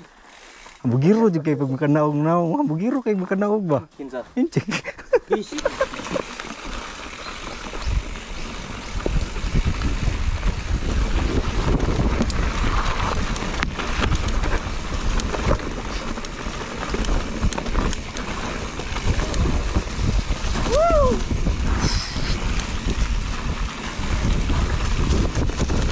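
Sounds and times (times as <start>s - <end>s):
bike rattling over bumps: 5.3s - 25.9s
tyres running over dirt and stones: 5.3s - 25.9s
wind buffeting microphone: 7.2s - 25.9s.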